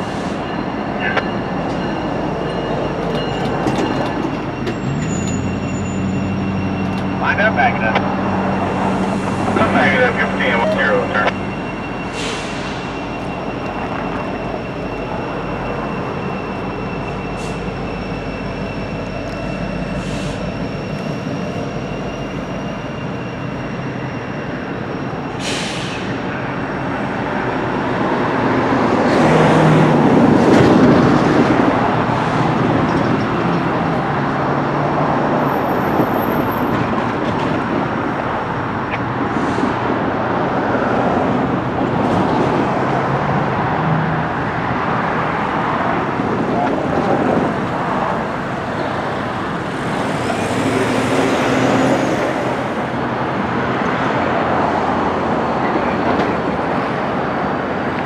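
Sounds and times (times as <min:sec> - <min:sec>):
diesel locomotives running: 0:00.0 - 0:58.0
steady high whine: 0:06.2 - 0:25.3.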